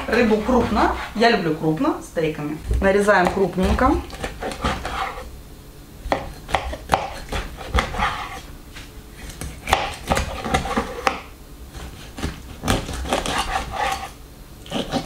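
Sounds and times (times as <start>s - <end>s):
knife chopping fish: 2.7s - 5.2s, 6.1s - 8.4s, 9.2s - 14.1s, 14.7s - 15.0s.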